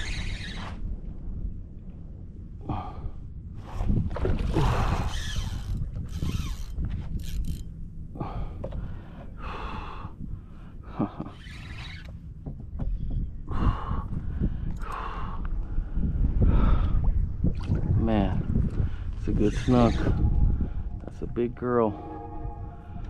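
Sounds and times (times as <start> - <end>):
low wind rumble on microphone: 0.0 - 23.0
person breathing hard: 8.2 - 10.9, 13.5 - 17.0.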